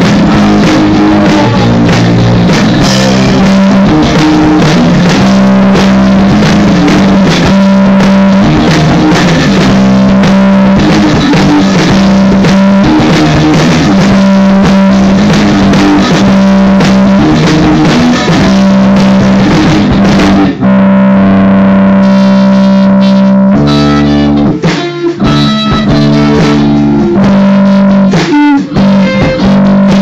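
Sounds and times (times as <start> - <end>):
distorted electric guitars: 0.0 - 30.0.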